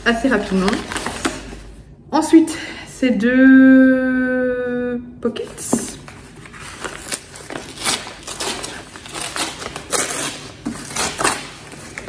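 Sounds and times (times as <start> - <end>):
paper packaging crinkling and tearing: 0.3 - 1.8, 6.0 - 12.0.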